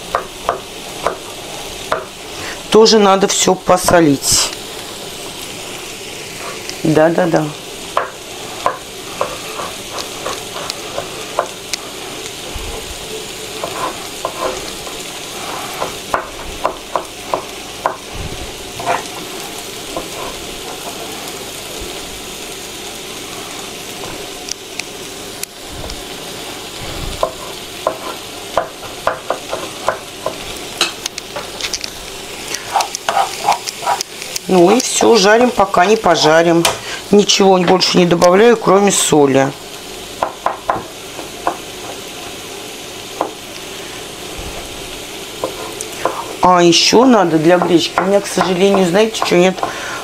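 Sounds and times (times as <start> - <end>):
mushrooms sizzling in frying pan: 0.0 - 50.0
spatula scraping and clicking on pan: 7.9 - 11.8, 13.6 - 18.1, 18.8 - 21.0, 27.2 - 34.4.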